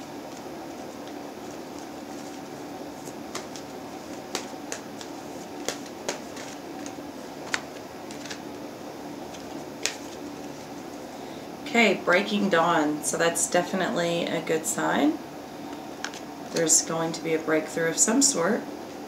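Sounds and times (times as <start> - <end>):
background hum: 0.0 - 19.0
cards being shuffled: 0.2 - 8.6, 9.2 - 11.0
card edges snapping: 0.3 - 8.6, 9.2 - 10.5.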